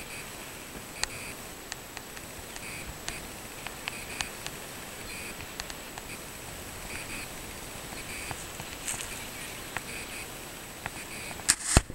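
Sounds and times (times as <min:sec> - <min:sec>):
steady hiss: 0:00.0 - 0:11.9
light clicks: 0:01.0 - 0:06.2.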